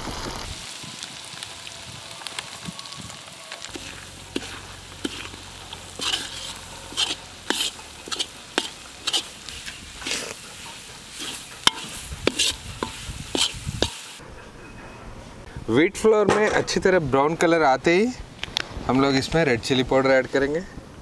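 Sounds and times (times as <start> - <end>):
flour sizzling in hot oil: 0.0 - 14.2
metal ladle scraping a wok: 3.6 - 14.8.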